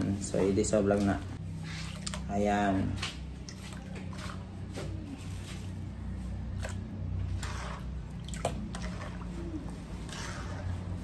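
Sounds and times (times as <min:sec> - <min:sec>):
spoon scraping metal pan: 0:10.0 - 0:11.0.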